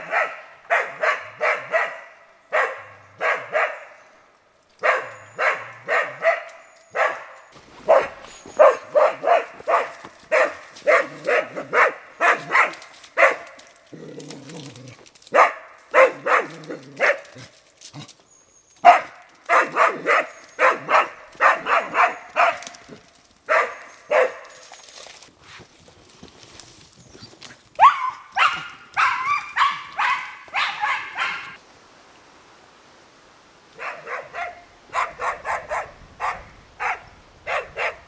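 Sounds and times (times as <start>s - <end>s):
dog barking: 0.0s - 4.0s, 4.8s - 13.6s, 15.3s - 17.2s, 18.8s - 22.8s, 23.5s - 24.5s, 27.8s - 31.6s, 33.8s - 38.0s.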